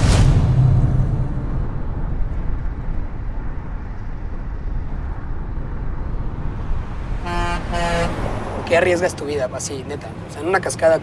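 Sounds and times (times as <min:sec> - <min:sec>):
van engine and road rumble: 0:00.0 - 0:11.0.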